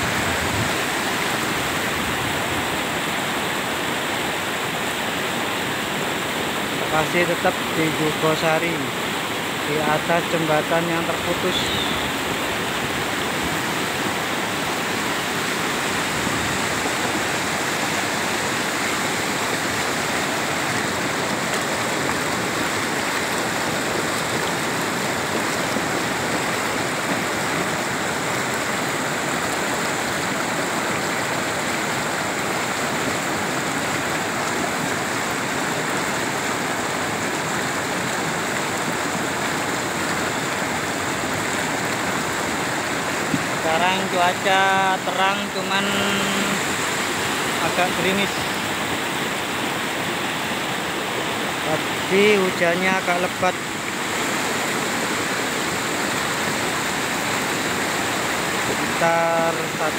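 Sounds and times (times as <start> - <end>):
water rushing over boulders: 0.0 - 59.9.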